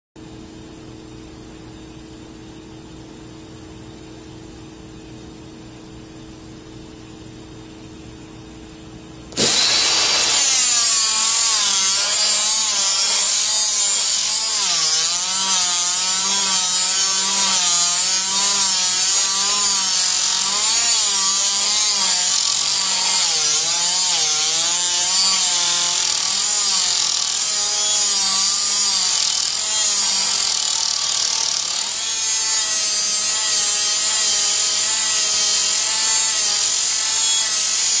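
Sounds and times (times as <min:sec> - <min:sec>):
pneumatic die grinder whining: 0:09.3 - 0:38.0.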